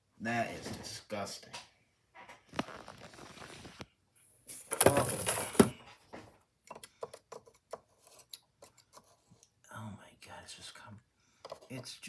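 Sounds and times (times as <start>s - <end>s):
rustling and scraping: 2.2s - 6.4s.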